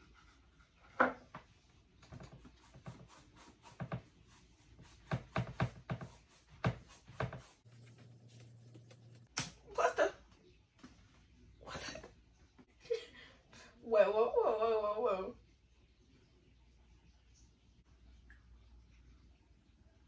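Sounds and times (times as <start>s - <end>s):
paintbrush dabbing and scrubbing: 0.0s - 9.3s.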